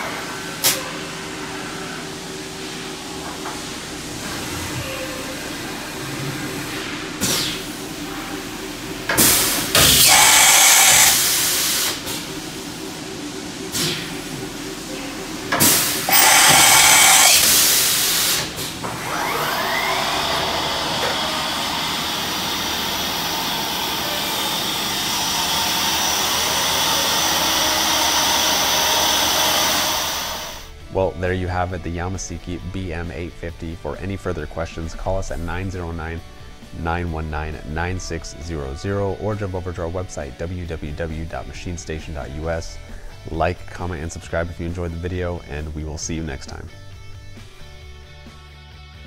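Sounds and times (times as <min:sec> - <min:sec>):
machine running with faint whine: 0:00.0 - 0:48.2
hissing air blasts: 0:09.1 - 0:13.0, 0:13.6 - 0:30.8.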